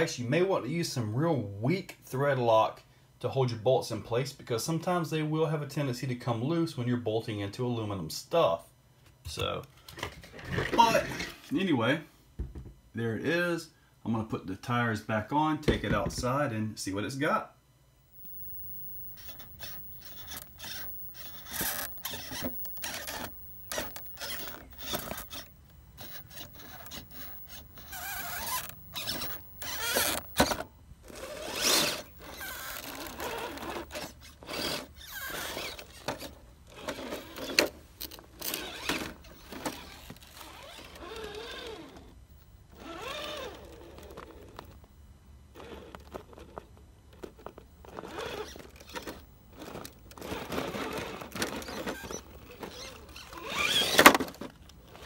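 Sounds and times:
rc truck motor whirring: 18.1s - 44.9s, 45.5s - 55.0s.

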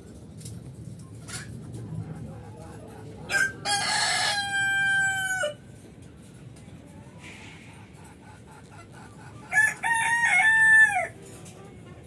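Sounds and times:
rooster crowing: 3.3s - 5.6s, 9.5s - 11.1s.

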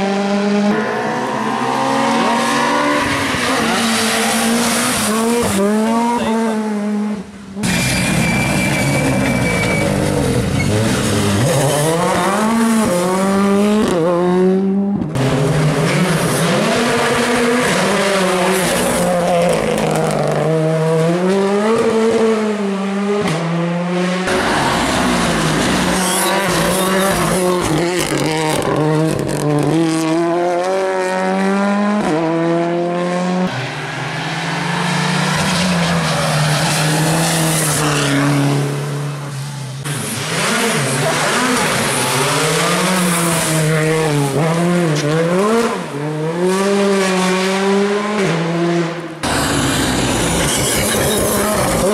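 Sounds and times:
rally car engines revving: 0.0s - 51.9s.

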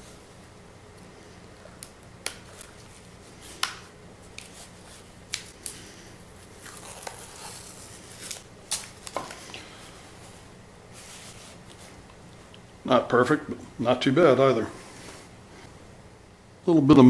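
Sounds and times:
tape peeling and crackling: 0.9s - 9.5s.

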